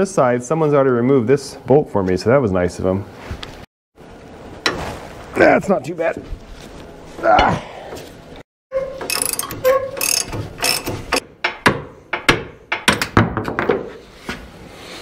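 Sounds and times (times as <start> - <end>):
ratchet wrench clicking: 9.0 - 11.2.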